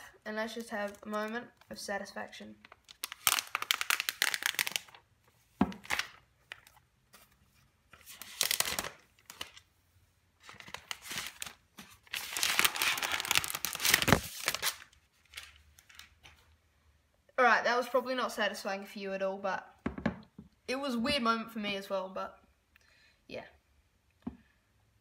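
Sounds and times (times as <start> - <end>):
plastic wrap crinkling and tearing: 0.5 - 1.8, 2.6 - 5.1, 5.7 - 6.8, 8.0 - 9.7, 10.4 - 16.2.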